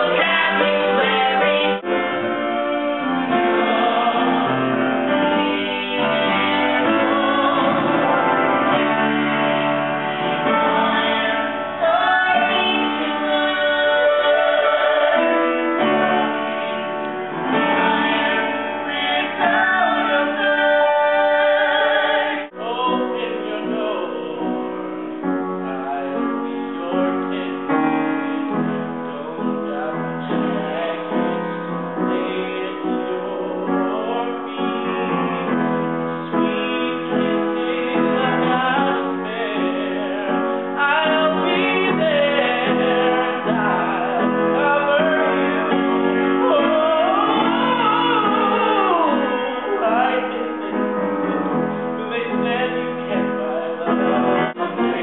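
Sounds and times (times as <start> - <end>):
woman singing: 0.0 - 2.2, 3.3 - 8.2, 10.4 - 16.2, 17.5 - 24.6, 36.3 - 50.8, 52.0 - 55.0
piano accompaniment: 0.0 - 55.0.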